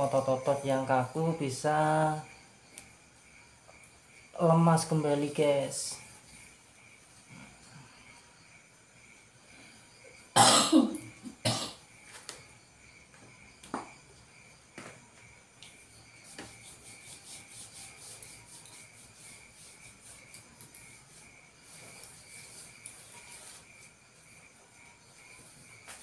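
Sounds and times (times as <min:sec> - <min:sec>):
person coughing: 0:10.4 - 0:11.8.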